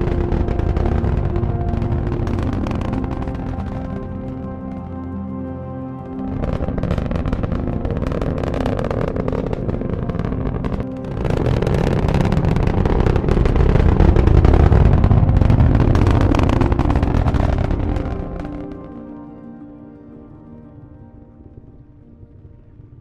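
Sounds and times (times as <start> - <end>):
rocket engine roar: 0.0 - 5.1, 6.1 - 19.0.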